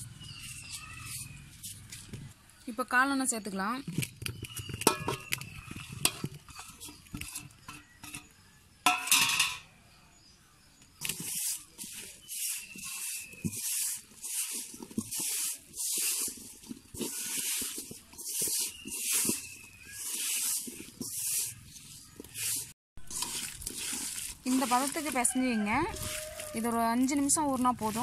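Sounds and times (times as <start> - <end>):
rhythmic rustling and squishing: 11.0 - 28.0.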